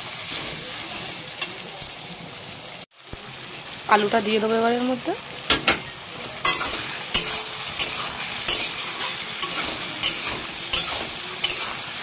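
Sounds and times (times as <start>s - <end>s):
food sizzling: 0.0s - 12.0s
spatula scraping a wok: 6.4s - 12.0s.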